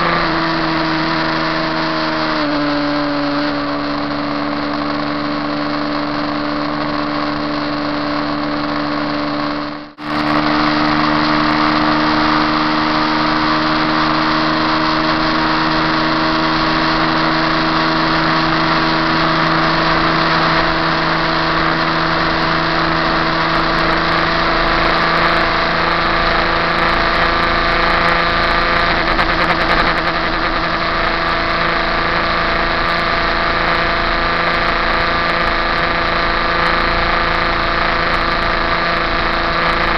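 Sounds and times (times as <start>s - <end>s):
motorcycle engine at high revs: 0.0s - 39.9s.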